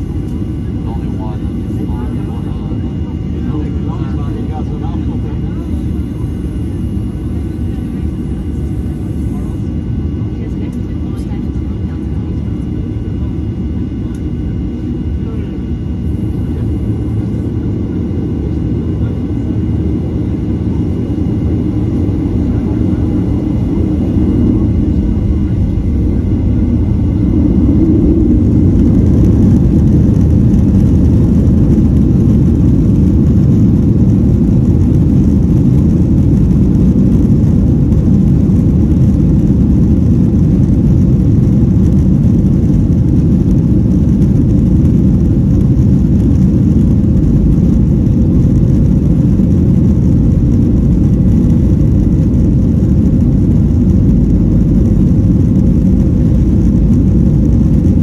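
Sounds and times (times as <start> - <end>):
wheels rumbling on runway: 0.0 - 58.0
jet engines spooling up: 16.3 - 58.0.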